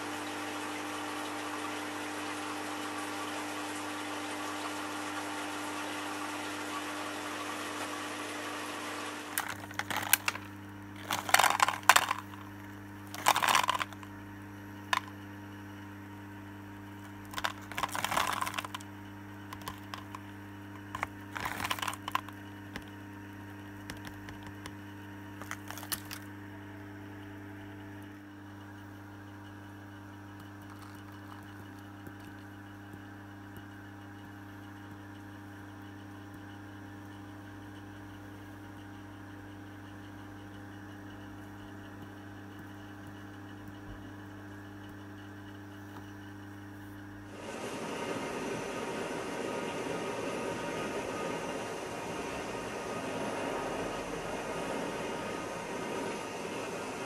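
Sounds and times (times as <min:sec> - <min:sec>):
low pump hum: 0:08.9 - 0:57.0
clicks and rustles of paper cups: 0:09.4 - 0:14.1, 0:14.9 - 0:15.2, 0:17.0 - 0:18.9, 0:19.5 - 0:20.2, 0:20.8 - 0:22.9, 0:23.8 - 0:24.8, 0:25.4 - 0:26.3, 0:30.6 - 0:32.5
liquid rushing into a kettle: 0:30.5 - 0:32.6.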